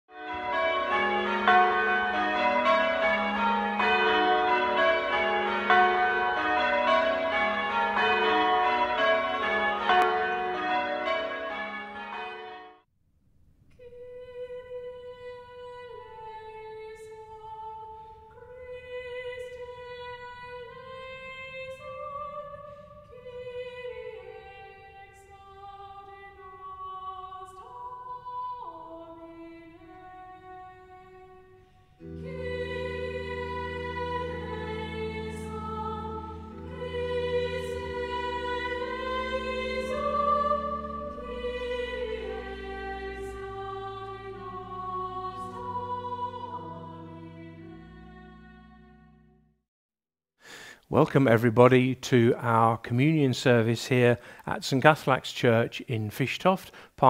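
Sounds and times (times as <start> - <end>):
church bells ringing rapidly: 0.1 - 12.8, 32.2 - 47.7
soft slow instrumental music: 29.8 - 49.2.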